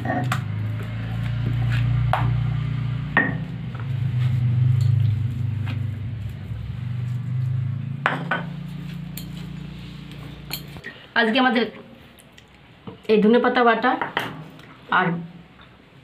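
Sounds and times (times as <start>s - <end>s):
steady low hum: 0.0s - 11.2s.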